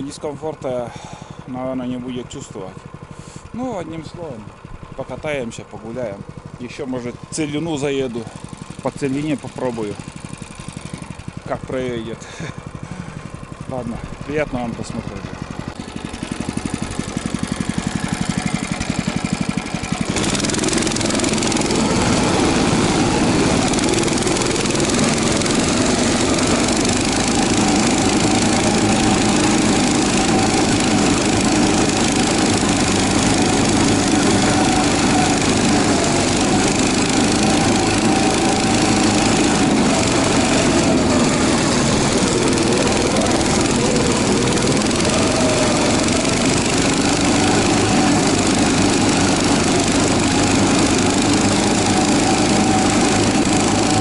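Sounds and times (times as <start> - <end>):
tracked vehicle engine: 0.0 - 54.0.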